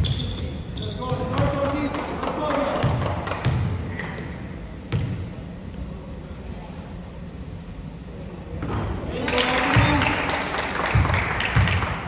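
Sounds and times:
basketball bouncing on gym floor: 0.0s - 5.4s, 10.9s - 11.9s.

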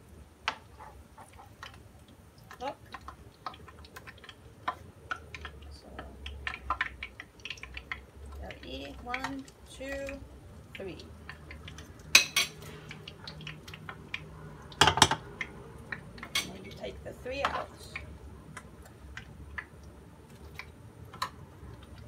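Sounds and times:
utensils clinking against pan and bowl: 12.2s - 12.9s, 14.8s - 15.2s, 16.2s - 16.8s.

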